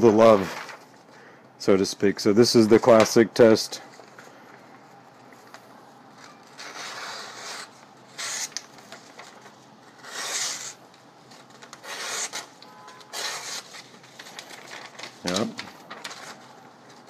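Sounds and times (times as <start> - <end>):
knife slicing paper: 6.5 - 9.4, 10.0 - 10.8, 11.6 - 16.4.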